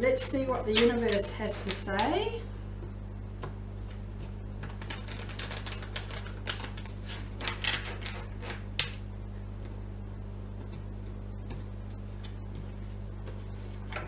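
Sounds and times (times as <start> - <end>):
cards being shuffled: 4.2 - 9.0.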